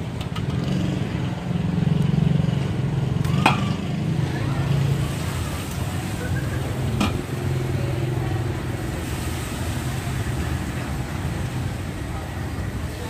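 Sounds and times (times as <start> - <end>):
oil frying in a pan: 4.2 - 13.0.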